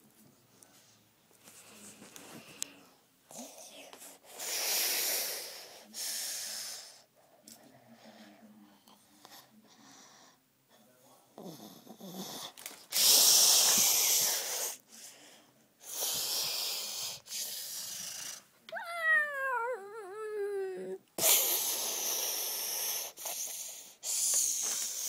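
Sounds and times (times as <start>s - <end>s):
child breathy hissing: 3.6s - 7.1s, 12.9s - 14.8s, 15.8s - 18.5s, 20.8s - 25.0s
child wavering voiced whine: 18.7s - 21.0s.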